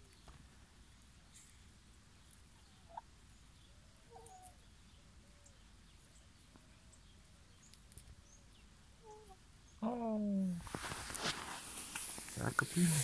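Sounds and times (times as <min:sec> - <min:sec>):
wild birds chirping: 0:00.0 - 0:10.8
hen clucking softly: 0:02.5 - 0:03.1.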